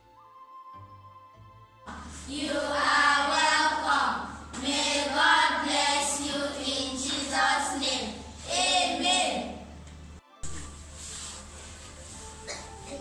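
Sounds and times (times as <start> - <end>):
faint music track: 0.0 - 13.0
children speaking in unison: 1.9 - 9.6.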